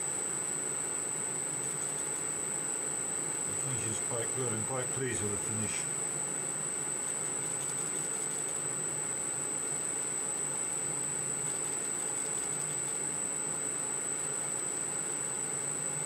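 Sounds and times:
high-pitched whine: 3.2 - 13.4.

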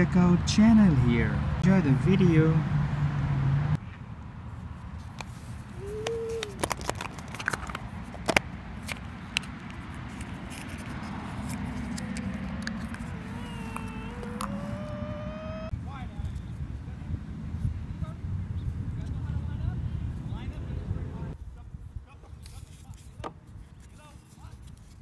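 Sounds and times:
plastic egg clicking and snapping: 6.4 - 9.5.

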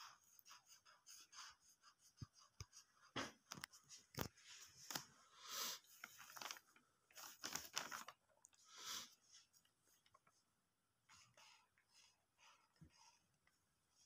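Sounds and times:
paper rustling: 3.5 - 5.1, 5.8 - 8.2.

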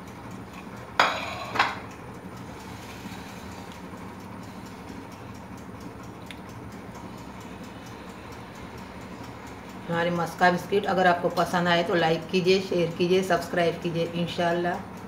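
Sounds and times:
low background hum: 0.0 - 15.0
plate scraping on countertop: 1.0 - 1.8.

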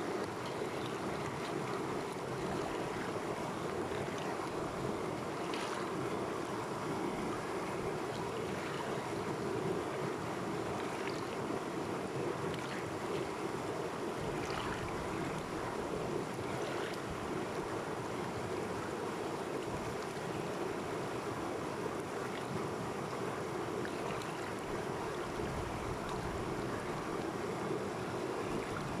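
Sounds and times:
small water splashes: 0.1 - 6.4, 7.1 - 9.6, 10.6 - 11.6, 12.2 - 13.5, 14.1 - 17.8, 22.0 - 27.2, 28.0 - 29.0.

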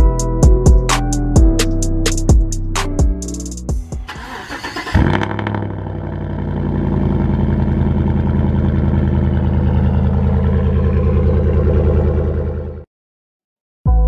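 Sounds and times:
pickup engine starting and idling: 4.0 - 12.8.

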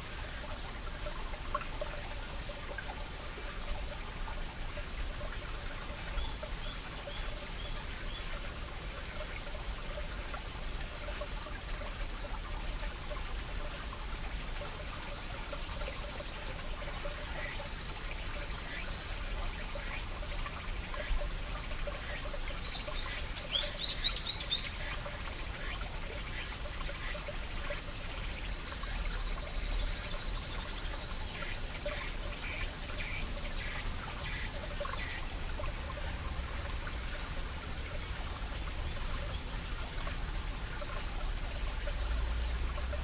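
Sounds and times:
stream trickling over rocks: 0.0 - 43.0
water drips: 0.0 - 43.0.

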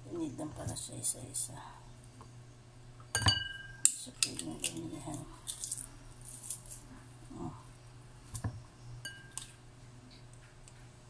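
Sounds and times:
garlic press squishing garlic: 3.9 - 6.9.

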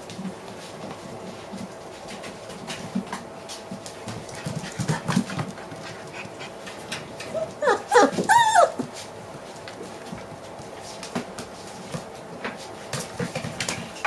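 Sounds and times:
puppies yelping: 7.2 - 8.9.

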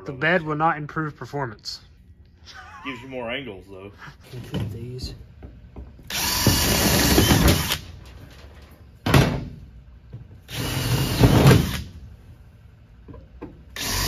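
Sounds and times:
power drill drilling out rivets: 6.1 - 7.9, 10.5 - 11.9, 13.8 - 14.0.

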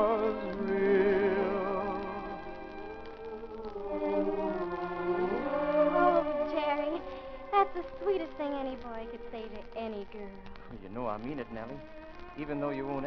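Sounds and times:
orchestra playing slow ballad: 0.0 - 2.8, 3.8 - 6.5, 10.7 - 13.0
person singing: 0.0 - 2.9, 3.6 - 10.4.

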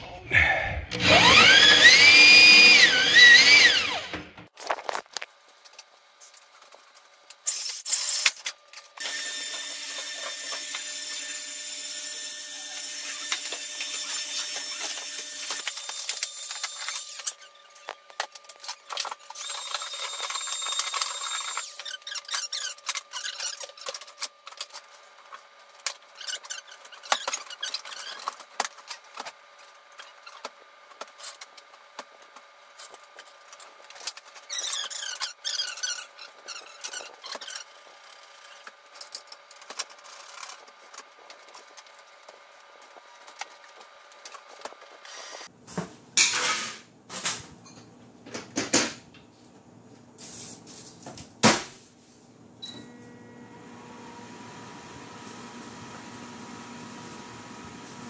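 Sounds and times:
drill whirring: 0.9 - 4.3, 9.0 - 17.3
drill with hole saw cutting board: 0.9 - 4.3, 9.0 - 17.4, 19.3 - 22.0.

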